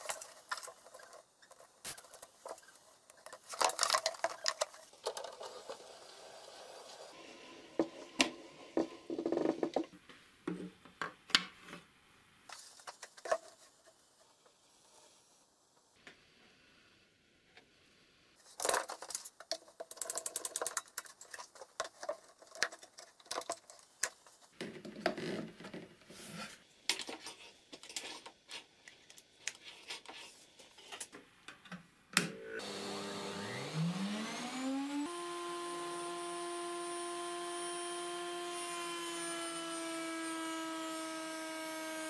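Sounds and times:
router motor whine: 32.5s - 42.0s.

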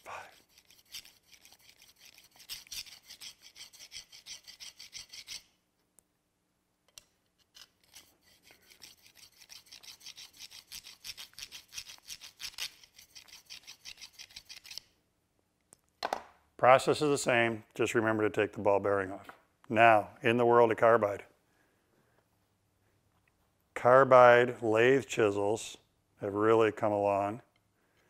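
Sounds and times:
metal scraping on diamond hone: 0.3s - 5.5s, 7.4s - 14.9s.

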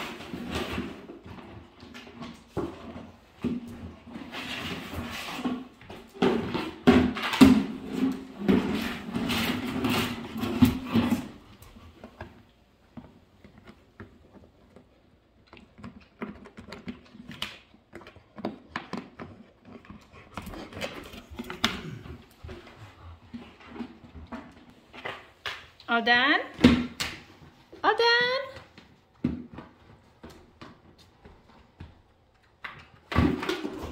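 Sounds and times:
plastic bucket scraping on wood floor: 0.0s - 12.4s, 33.1s - 33.9s.

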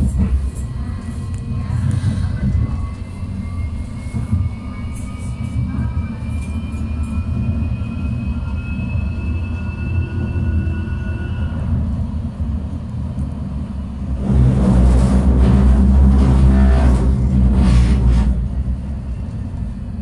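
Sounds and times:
tram wheels rumbling: 0.0s - 20.0s.

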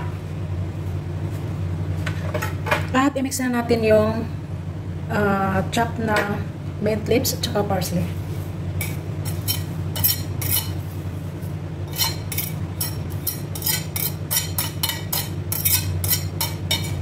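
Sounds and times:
knife scraping a ceramic plate: 8.8s - 10.8s, 11.9s - 17.0s.

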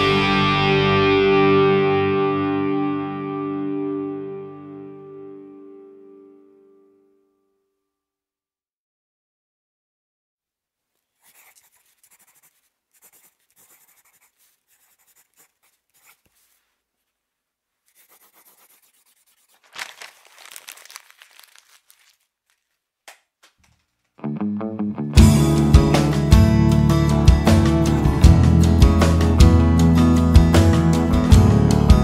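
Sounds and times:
rustling and crinkling: 10.8s - 24.2s.

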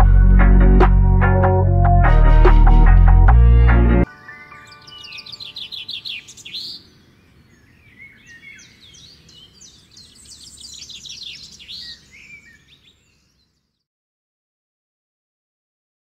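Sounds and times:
birds chirping and singing: 4.1s - 13.8s.

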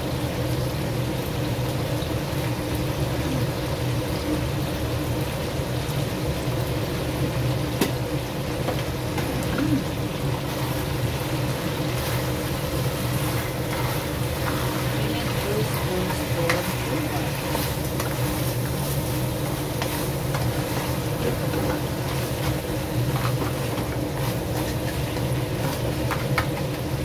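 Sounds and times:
seafood simmering in sauce: 0.0s - 27.0s
steady hum: 8.8s - 27.0s.

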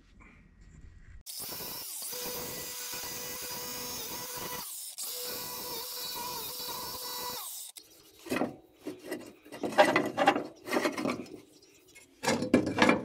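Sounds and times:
angle grinder cutting steel: 1.3s - 8.4s.

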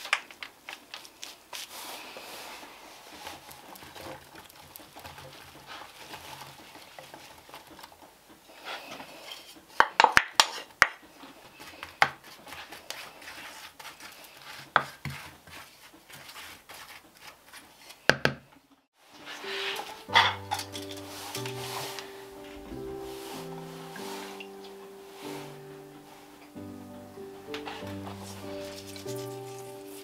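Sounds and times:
apple slices rustling: 0.0s - 9.8s, 10.4s - 18.1s, 19.0s - 30.0s
music: 19.0s - 30.0s.

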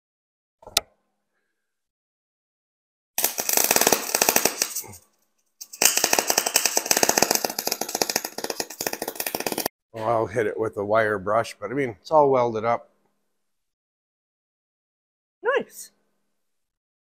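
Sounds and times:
welding arc crackling: 3.2s - 5.0s, 5.6s - 9.7s.

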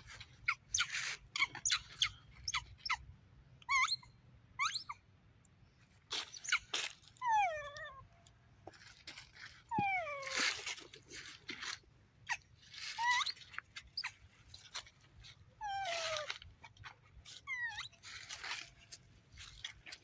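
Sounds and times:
rustling: 8.6s - 20.0s
baby monkeys cooing: 15.6s - 16.4s.

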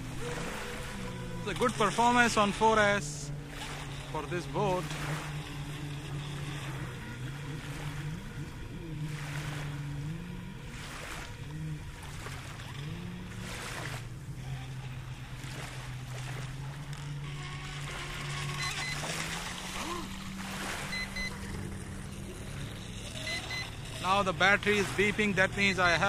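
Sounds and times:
rc boat motor hum: 0.0s - 26.0s
small waves washing: 0.0s - 26.0s
short paired beeps: 18.3s - 19.5s, 20.7s - 24.2s.

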